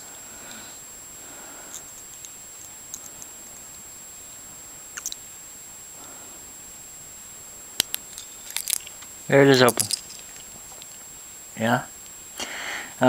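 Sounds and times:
lock pick clicks: 0:05.0 - 0:05.2, 0:07.8 - 0:09.1, 0:09.7 - 0:10.9.

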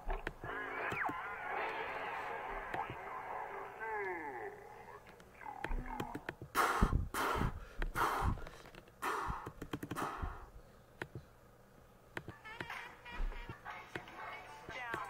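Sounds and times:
breathy huffs or gasps: 0:06.6 - 0:10.8.

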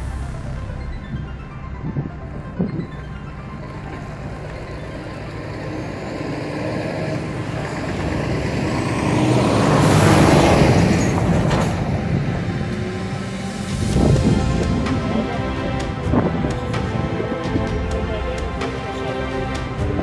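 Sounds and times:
car passing by: 0:04.1 - 0:16.9.

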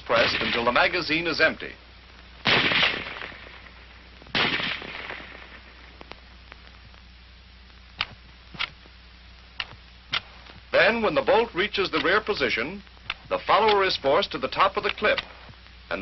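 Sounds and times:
rifle shots echoing: 0:00.1 - 0:00.8, 0:02.4 - 0:06.0
faint sharp clicks: 0:06.0 - 0:07.1.

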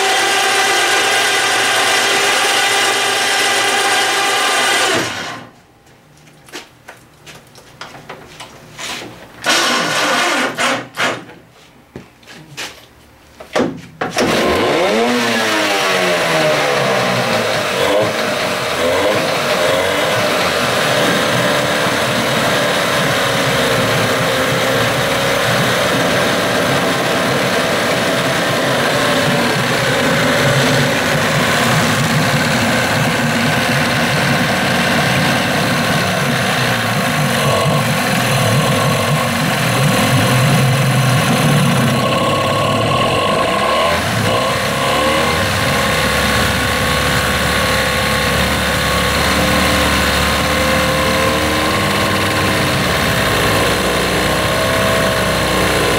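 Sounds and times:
outboard motor running: 0:00.0 - 0:05.4, 0:14.3 - 0:55.9
propeller churning water: 0:22.7 - 0:42.7.

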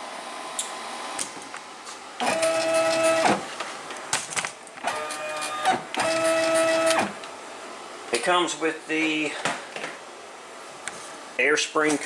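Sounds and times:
stepper motor whine: 0:02.2 - 0:03.4, 0:04.9 - 0:07.2.

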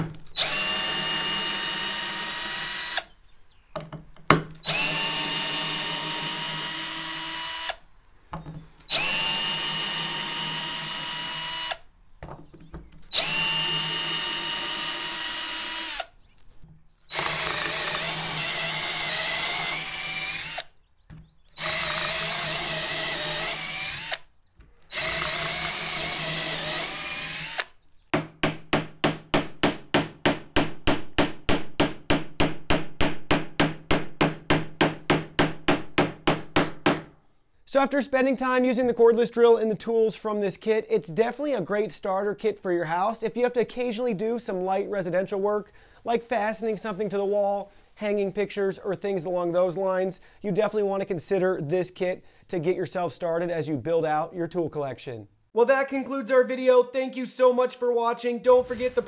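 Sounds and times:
cordless drill running: 0:00.3 - 0:03.1, 0:04.6 - 0:07.8, 0:08.9 - 0:11.9, 0:13.1 - 0:16.2, 0:17.1 - 0:20.8, 0:21.6 - 0:27.8
hammer tapping a nail: 0:28.2 - 0:37.1.

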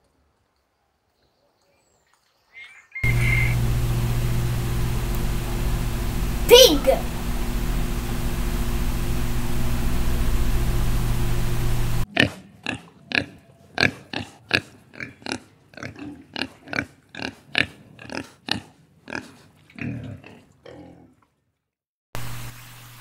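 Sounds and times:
piglets squealing: 0:03.0 - 0:03.6
steady noisy hum: 0:03.0 - 0:12.1.

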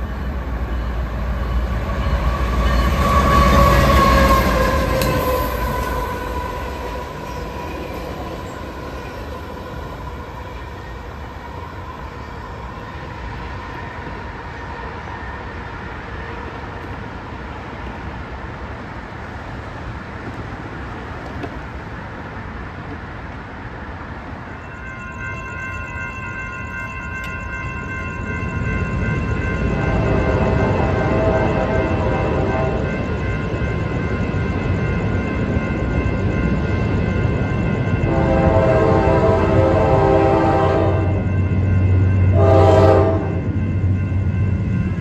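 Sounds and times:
crossing warning bell ringing: 0:00.0 - 0:14.2, 0:24.0 - 0:45.0
train rumble and rattle: 0:00.0 - 0:45.0
locomotive horn tones: 0:29.8 - 0:33.0, 0:38.1 - 0:41.3, 0:42.3 - 0:43.5.

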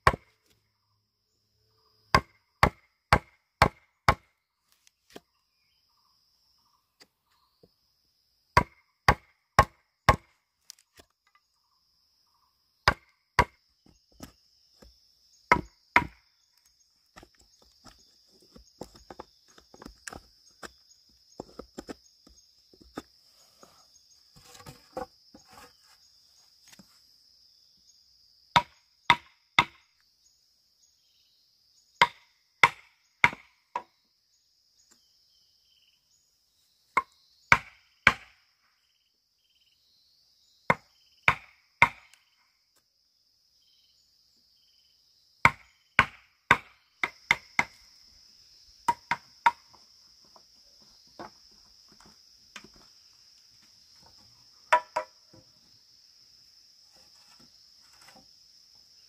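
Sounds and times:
blade chopping bamboo: 0:00.0 - 0:00.3, 0:02.2 - 0:04.3, 0:08.6 - 0:10.3, 0:12.9 - 0:13.6.

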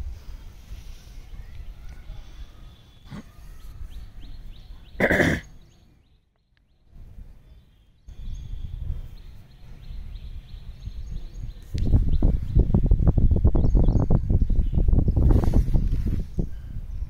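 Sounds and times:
wind rumbling on microphone: 0:00.0 - 0:02.8, 0:06.9 - 0:17.0
small birds chirping faintly: 0:00.0 - 0:17.0.

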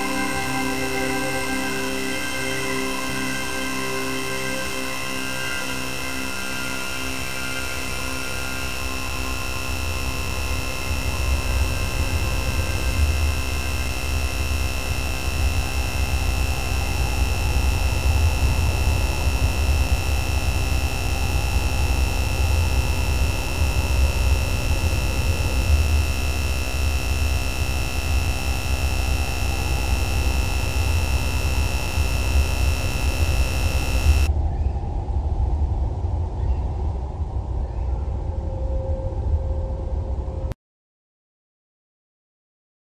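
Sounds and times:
electronic drone of layered tones: 0:00.0 - 0:34.3
high electronic tone: 0:03.0 - 0:34.3.

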